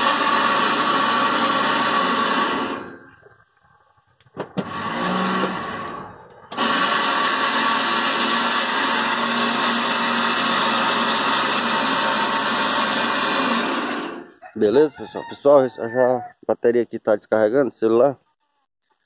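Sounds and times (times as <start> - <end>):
electric motor running: 0.0 - 3.1, 4.6 - 14.3.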